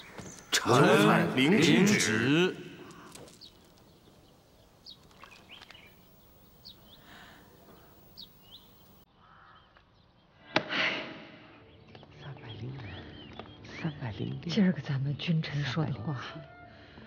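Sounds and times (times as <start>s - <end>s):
faint bird chirps: 2.8s - 10.4s
crow cawing: 9.2s - 9.7s.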